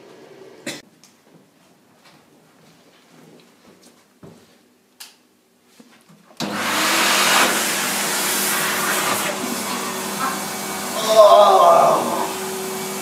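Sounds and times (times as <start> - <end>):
vacuum cleaner running: 0.0 - 0.7, 6.4 - 13.0.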